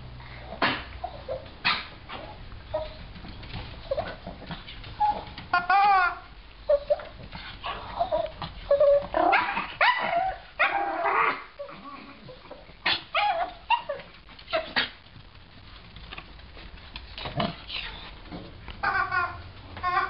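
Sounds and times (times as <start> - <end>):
dog yipping and barking: 5.0 - 11.8, 12.8 - 15.0, 18.8 - 20.0.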